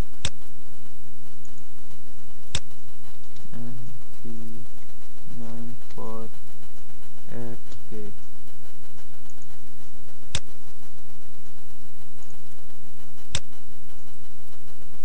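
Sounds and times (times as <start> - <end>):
computer mouse clicks: 0.0 - 0.4, 2.4 - 3.5, 10.3 - 10.6, 13.2 - 13.6
steady low hum: 0.0 - 15.0.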